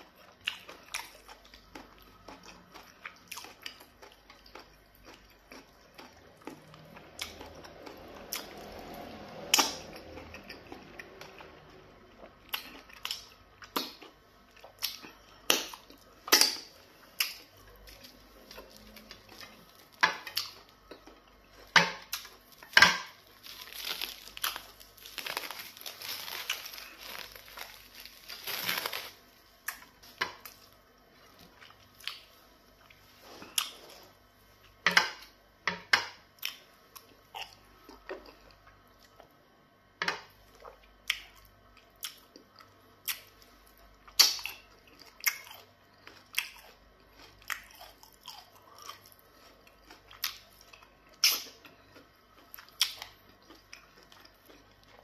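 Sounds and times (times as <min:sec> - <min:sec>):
person chewing with smacks: 0:00.0 - 0:35.0, 0:40.2 - 0:55.0
food squishing and tearing: 0:12.4 - 0:34.3.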